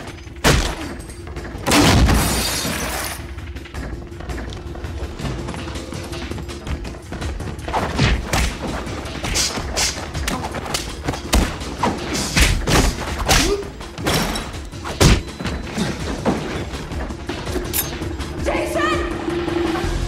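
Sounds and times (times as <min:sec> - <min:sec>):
punches and body thuds: 0:07.7 - 0:16.7.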